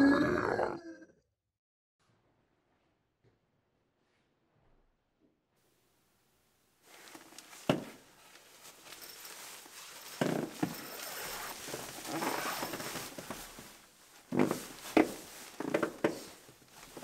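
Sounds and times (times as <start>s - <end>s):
nylon sleeping bag rustling: 6.8s - 17.0s.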